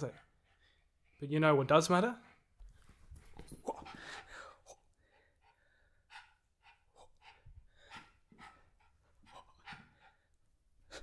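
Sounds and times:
small dog panting: 0:03.4 - 0:11.0.

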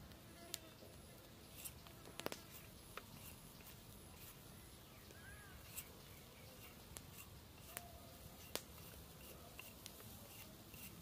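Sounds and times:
knife cutting carrot: 0:06.5 - 0:11.0.

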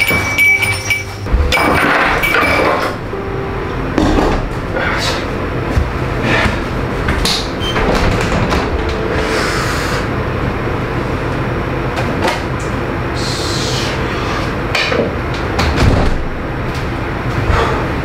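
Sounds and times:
refrigerator door opening: 0:05.8 - 0:09.1.

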